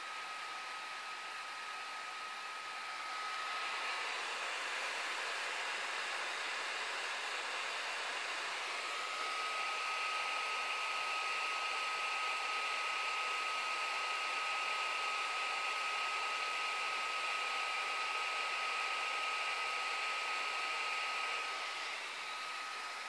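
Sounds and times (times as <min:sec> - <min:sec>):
laptop fan whoosh: 0:02.7 - 0:12.4, 0:21.0 - 0:23.0.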